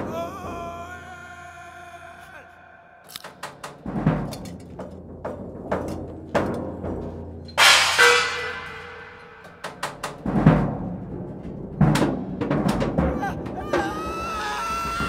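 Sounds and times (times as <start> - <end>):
deep drum hits: 3.8 - 14.0
ringing crash: 7.6 - 11.1.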